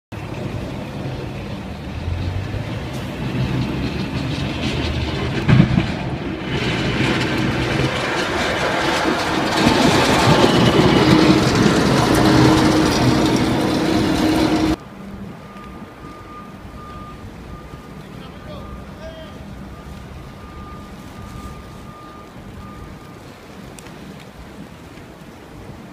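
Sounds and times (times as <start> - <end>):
bus engine pulling away: 0.2 - 25.4
snowplow scraping slush: 0.2 - 25.9.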